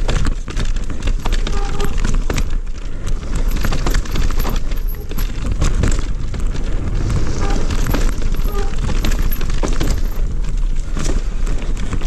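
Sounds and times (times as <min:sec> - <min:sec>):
bike rattling over bumps: 0:00.0 - 0:12.0
bike tyres on soil: 0:00.0 - 0:12.0
wind rumble on microphone: 0:00.0 - 0:12.0.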